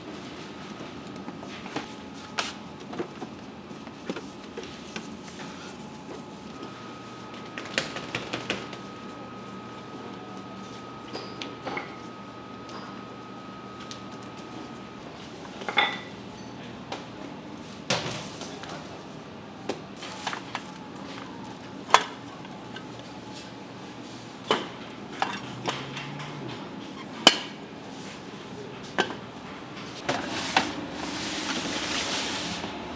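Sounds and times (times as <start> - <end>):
steady background hum: 0.0 - 32.9.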